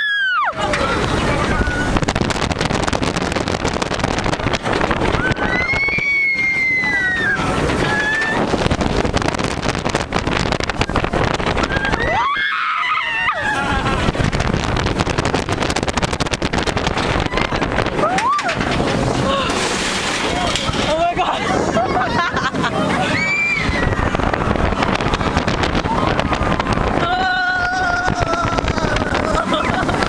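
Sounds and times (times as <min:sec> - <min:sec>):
roller coaster on track: 0:00.0 - 0:30.0
wind rushing over microphone: 0:00.0 - 0:30.0
riders screaming: 0:05.1 - 0:08.5, 0:11.6 - 0:14.1.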